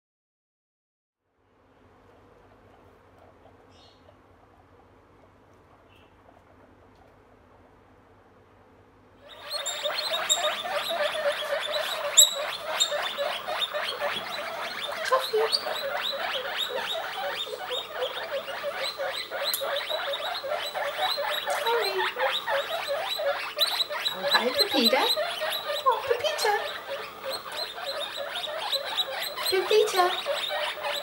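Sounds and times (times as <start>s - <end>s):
guinea pigs squeaking: 2.2s - 7.9s, 9.2s - 31.0s.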